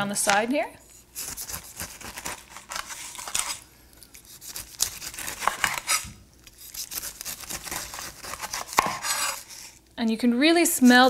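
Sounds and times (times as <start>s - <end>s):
knife slicing pineapple rind: 1.1s - 9.8s.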